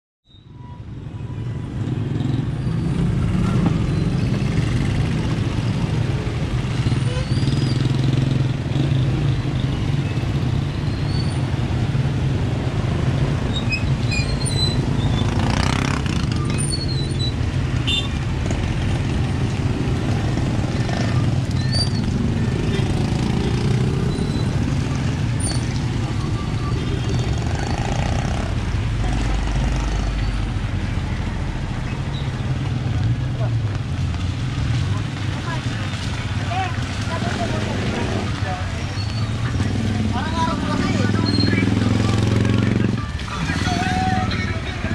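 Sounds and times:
road traffic rumble: 0:00.3 - 0:44.9
vehicle passing loudly: 0:14.8 - 0:16.6, 0:17.4 - 0:44.9.

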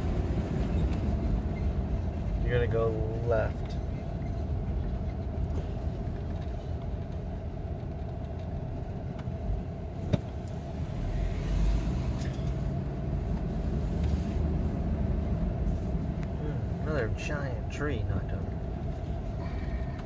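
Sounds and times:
engine and road rumble: 0:00.0 - 0:20.0.

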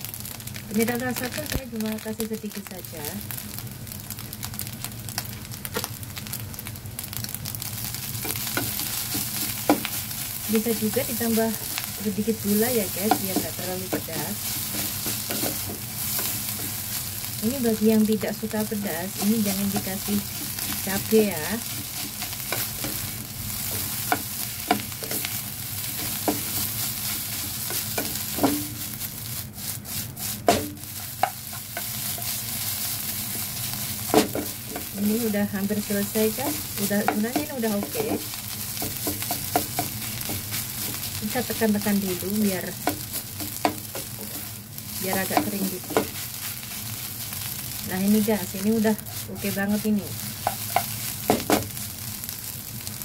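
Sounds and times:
rice sizzling in a wok: 0:00.0 - 0:53.0
spatula scraping a wok: 0:07.8 - 0:17.4, 0:19.2 - 0:47.9, 0:48.9 - 0:51.7.

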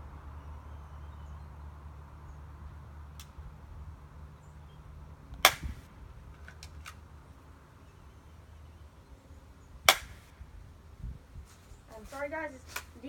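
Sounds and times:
pistol shot snap: 0:05.4 - 0:05.9, 0:09.9 - 0:10.3.

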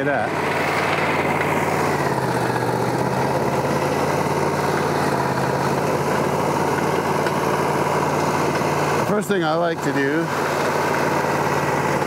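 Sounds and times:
sawmill engine idling: 0:00.0 - 0:12.0.

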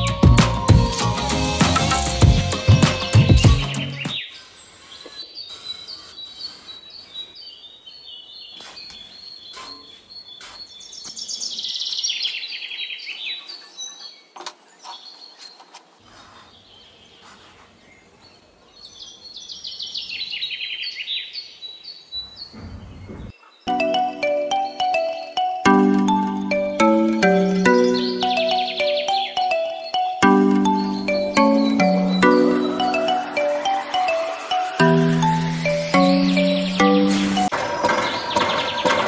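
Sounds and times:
small birds chirping: 0:01.7 - 0:37.5
bird descending trills: 0:23.7 - 0:39.0.

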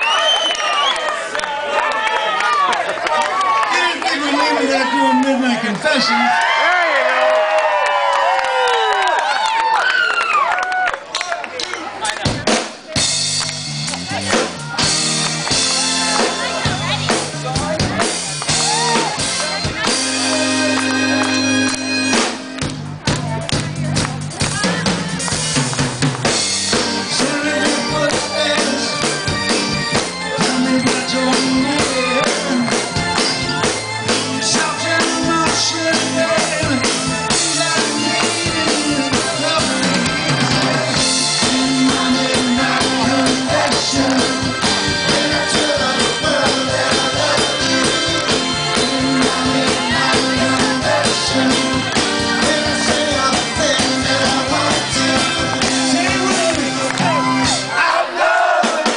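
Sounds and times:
drum kit: 0:12.2 - 0:57.8, 0:58.5 - 0:58.9
electric bass: 0:12.3 - 0:57.7
man singing lead vocal: 0:26.9 - 0:29.3, 0:30.3 - 0:33.4, 0:34.3 - 0:57.1.

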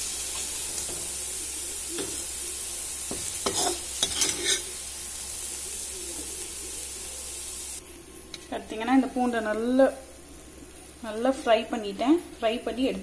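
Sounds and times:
garlic sizzling in hot oil: 0:00.0 - 0:13.0
steel ladle scraping a pan: 0:03.4 - 0:04.8.

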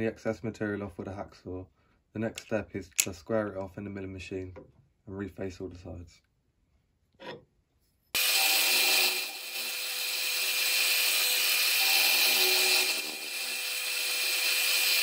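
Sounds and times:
milling machine cutting metal: 0:08.2 - 0:15.0.

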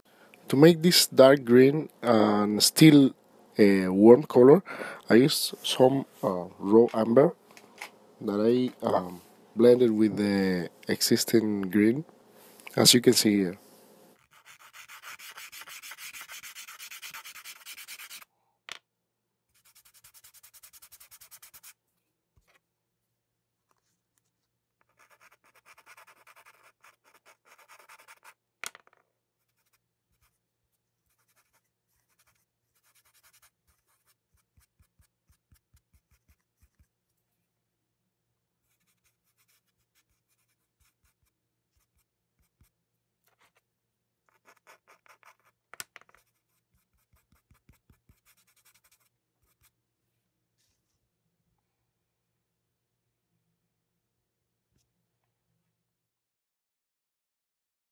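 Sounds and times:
pastel scraping on paper: 0:14.2 - 0:18.3, 0:19.6 - 0:21.8, 0:24.8 - 0:28.4, 0:31.0 - 0:37.1, 0:44.3 - 0:49.7.

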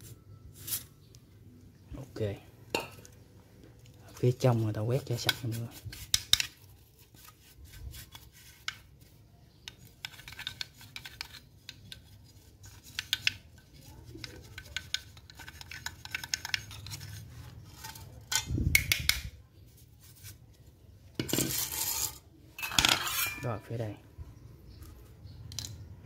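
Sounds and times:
paintbrush scratching casing: 0:04.2 - 0:18.2.

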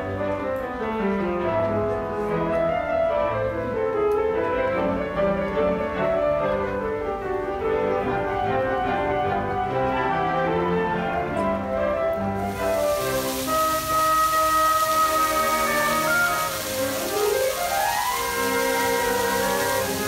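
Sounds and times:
piano: 0:00.0 - 0:20.0.

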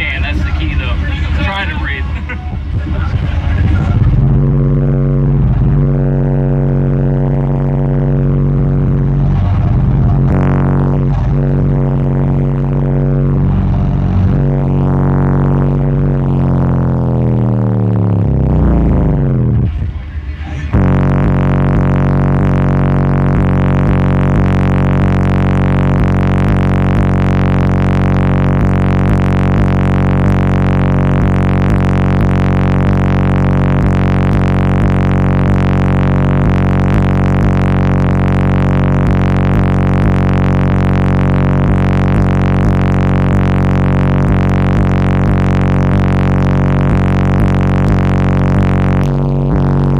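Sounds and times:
bass-heavy music from subwoofers: 0:00.0 - 0:49.9.

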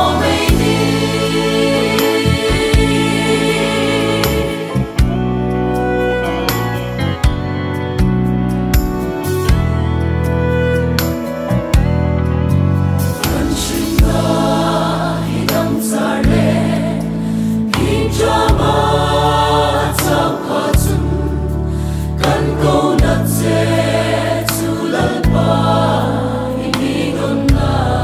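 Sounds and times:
choir singing gospel: 0:00.0 - 0:07.1, 0:13.0 - 0:28.0
instrumental backing: 0:00.0 - 0:28.0
sustained bass: 0:00.0 - 0:28.0
sharp percussion strikes: 0:13.2 - 0:16.4.

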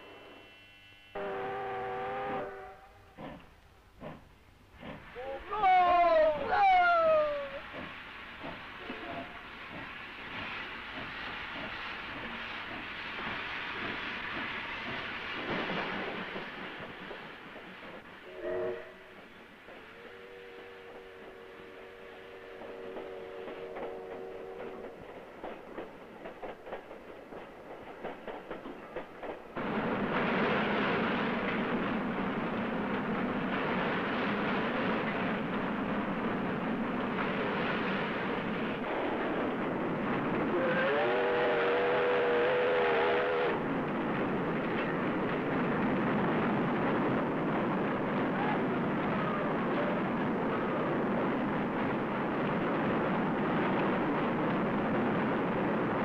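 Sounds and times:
train whistle: 0:00.0 - 0:03.2, 0:18.2 - 0:19.2, 0:19.8 - 0:24.9, 0:40.5 - 0:43.6
train wheels clicking over rail joints: 0:03.2 - 0:05.2, 0:07.6 - 0:18.2, 0:19.1 - 0:20.1, 0:22.6 - 0:40.8.

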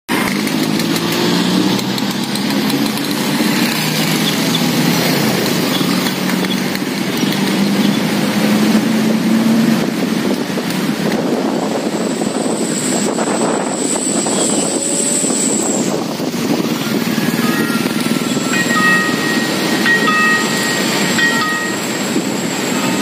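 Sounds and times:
motorcycle engines passing: 0:00.1 - 0:23.0
steady engine hum: 0:00.1 - 0:23.0.

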